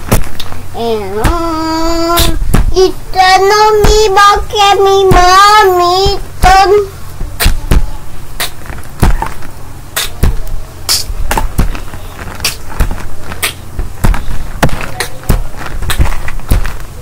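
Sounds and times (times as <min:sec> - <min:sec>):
objects knocking near microphone: 0:00.0 - 0:00.6, 0:02.2 - 0:02.9, 0:05.0 - 0:17.0
steady low hum: 0:00.0 - 0:17.0.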